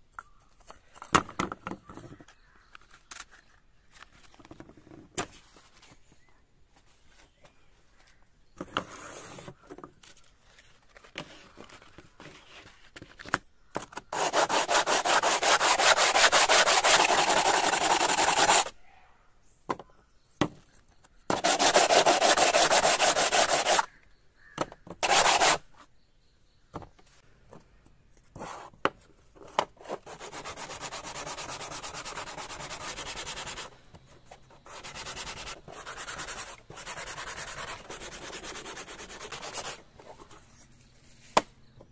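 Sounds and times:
sanding rasping strokes: 0:14.1 - 0:18.7, 0:21.3 - 0:23.9, 0:25.0 - 0:25.6, 0:29.8 - 0:33.8, 0:34.6 - 0:40.4.

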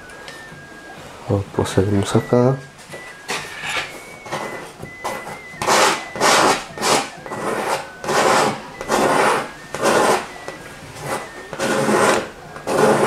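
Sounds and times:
paintbrush scrubbing canvas: 0:04.2 - 0:13.0.

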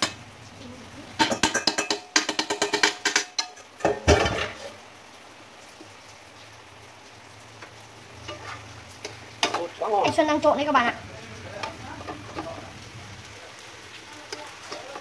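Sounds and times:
chopsticks clattering on pan: 0:01.2 - 0:04.6, 0:08.3 - 0:10.4, 0:11.6 - 0:12.6, 0:14.2 - 0:15.0.

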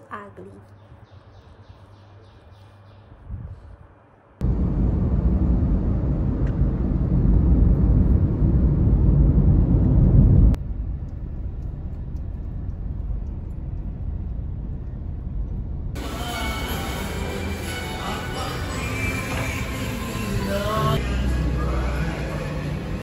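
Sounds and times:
steady background hum: 0:00.0 - 0:23.0
car road and engine rumble: 0:04.4 - 0:17.0.

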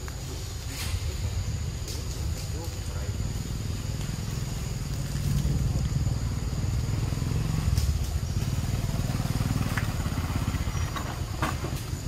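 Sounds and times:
engine running: 0:03.1 - 0:12.0.

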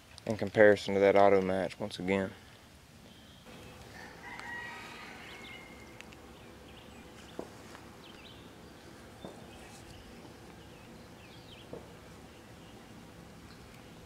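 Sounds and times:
small birds chirping: 0:03.0 - 0:14.0.

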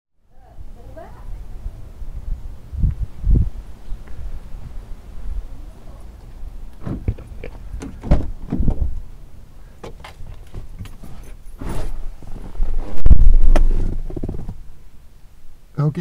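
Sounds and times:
knocks and thumps: 0:06.8 - 0:09.0
loud heavy thump: 0:07.8 - 0:09.0.

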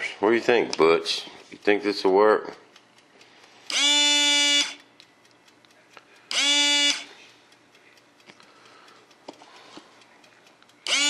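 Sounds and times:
small electric pump buzzing: 0:03.7 - 0:04.9, 0:06.3 - 0:07.2, 0:10.8 - 0:11.0.

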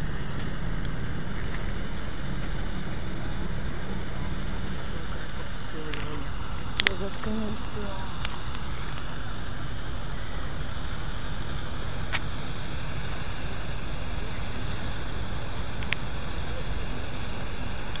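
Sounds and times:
low engine rumble: 0:00.0 - 0:18.0.

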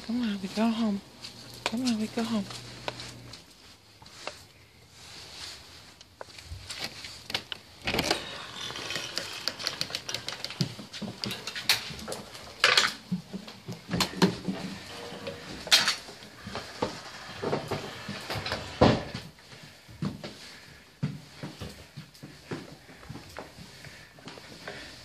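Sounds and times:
person and dogs walking: 0:00.0 - 0:25.0.

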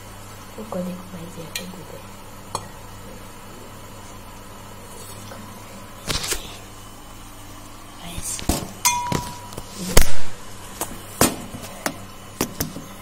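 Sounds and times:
steady low hum: 0:00.0 - 0:13.0
cooking pot clanking: 0:08.8 - 0:09.6.

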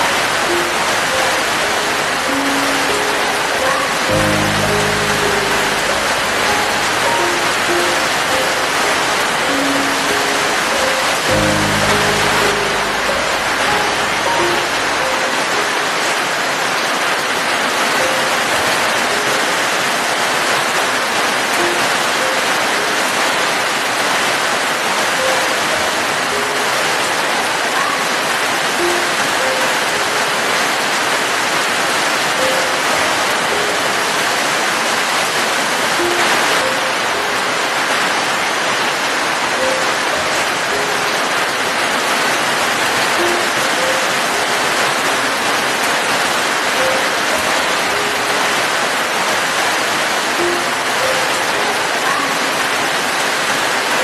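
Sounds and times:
soft sparse music notes: 0:00.0 - 0:16.7, 0:28.8 - 0:31.2, 0:43.0 - 0:49.2, 0:50.3 - 0:53.0
steady rain: 0:00.0 - 0:54.0.

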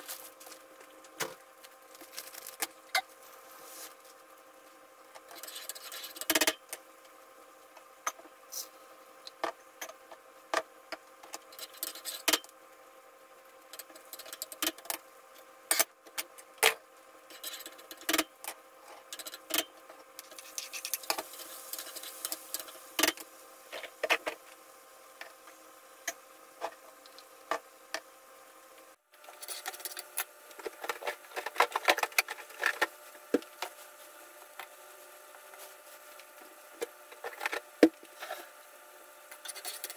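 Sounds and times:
faint steady hum: 0:00.0 - 0:39.9
rustling and clatter: 0:29.2 - 0:34.8.

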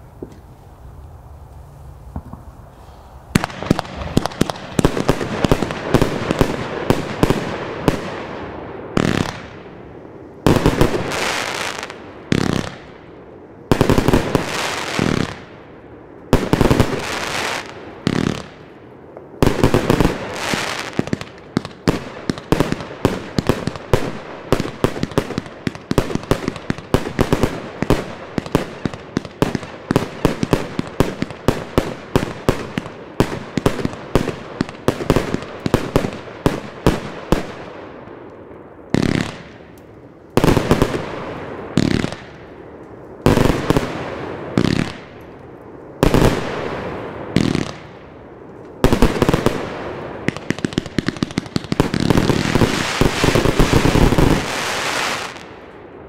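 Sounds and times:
firework shots and air bursts: 0:02.0 - 0:09.6, 0:48.8 - 0:55.6.

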